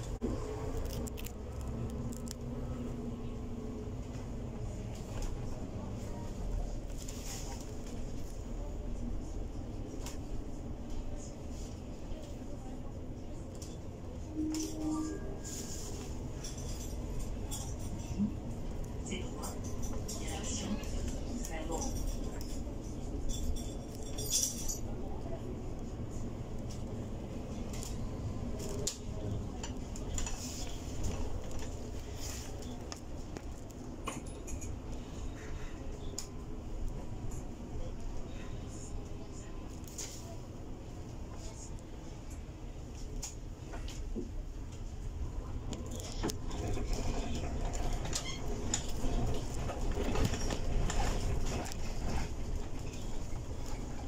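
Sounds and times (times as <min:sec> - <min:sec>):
bus interior rumble: 0:00.0 - 0:54.0
interior rattles and knocks: 0:46.0 - 0:54.0.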